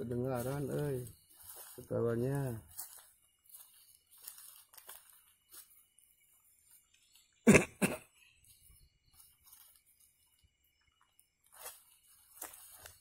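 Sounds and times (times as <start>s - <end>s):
person coughing: 7.4s - 8.1s.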